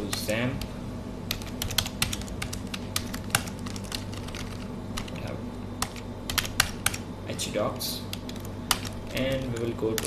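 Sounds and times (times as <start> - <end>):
steady low hum: 0.0 - 10.0
keyboard keys clicking: 1.3 - 7.0, 8.1 - 10.0.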